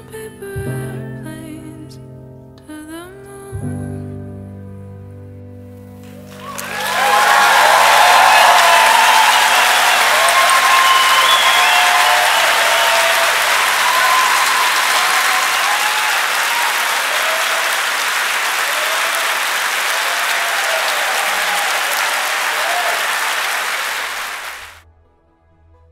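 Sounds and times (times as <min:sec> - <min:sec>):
audience applauding: 0:06.0 - 0:24.8.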